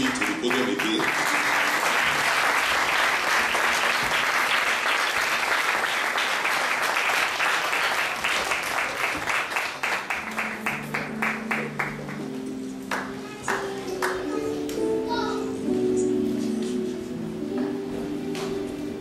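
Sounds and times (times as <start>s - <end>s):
soft music: 0.0s - 3.4s, 9.8s - 19.0s
congregation clapping: 0.0s - 14.2s.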